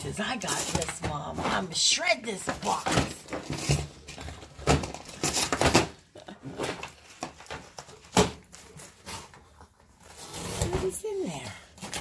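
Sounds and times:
dogs tearing cardboard: 2.5s - 11.2s.

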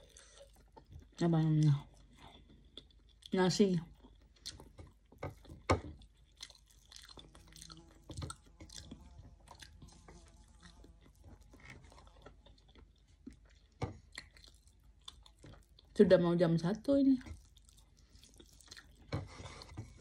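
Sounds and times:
chewing mouth clicks: 5.4s - 15.9s, 17.4s - 19.1s.

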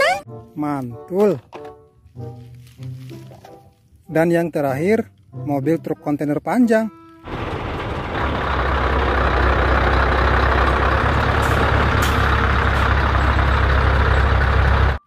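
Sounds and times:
truck engine rumbling: 7.1s - 15.0s.

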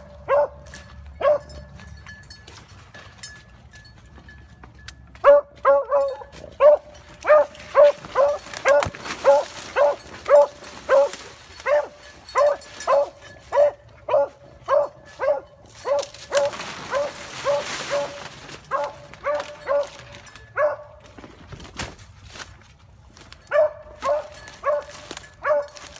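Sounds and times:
beagle barking: 0.0s - 1.6s, 5.2s - 21.0s, 23.5s - 25.9s.

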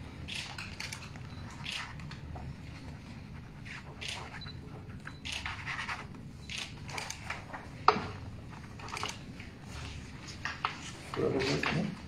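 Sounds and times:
pens scratching on paper: 0.4s - 6.2s
paper sheets rustling: 8.4s - 12.0s.

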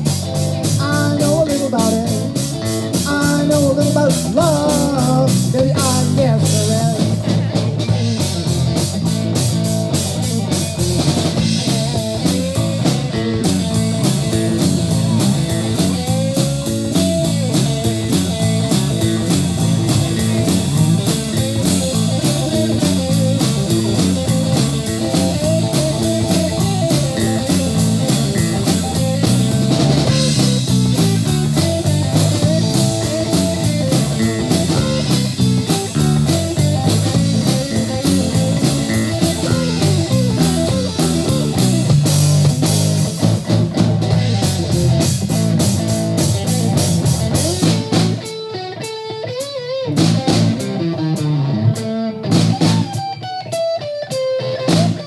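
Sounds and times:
bass line: 0.0s - 48.3s, 49.9s - 53.0s, 54.6s - 55.0s
electric guitar lead: 0.0s - 55.0s
fast cymbal beat: 7.9s - 48.3s.

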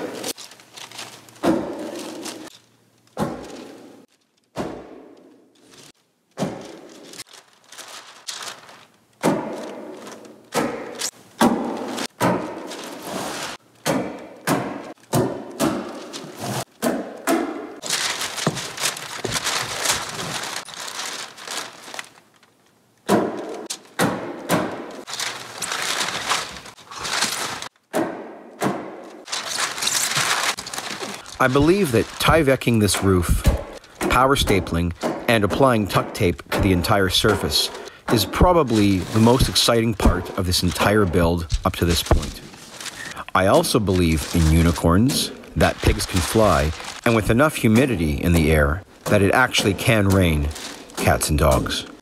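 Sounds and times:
steady hissing noise: 29.2s - 52.0s.

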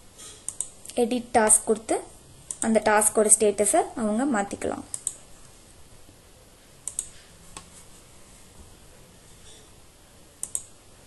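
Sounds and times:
computer mouse clicks: 0.4s - 1.0s, 2.5s - 2.8s, 4.8s - 5.2s, 6.8s - 7.7s, 10.4s - 10.8s.

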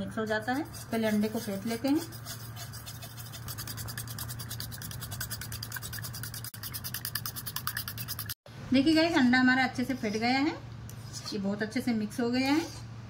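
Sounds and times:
fork beating eggs in a bowl: 0.0s - 8.4s.

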